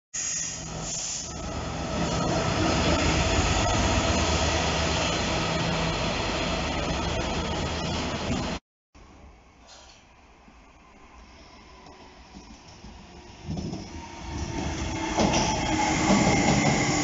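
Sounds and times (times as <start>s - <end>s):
diesel locomotive engine hum: 0.2s - 17.0s.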